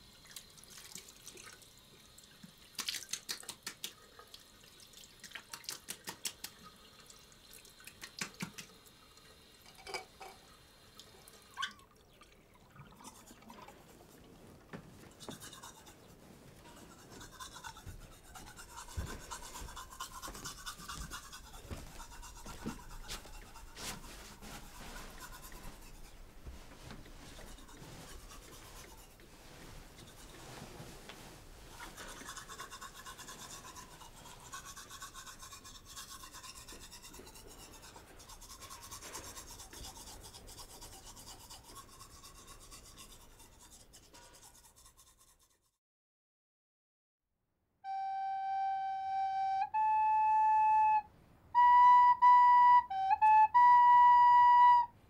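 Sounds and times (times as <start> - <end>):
toothbrush scrubbing teeth: 2.8 - 7.0, 12.8 - 13.8, 15.0 - 30.8, 31.6 - 45.8.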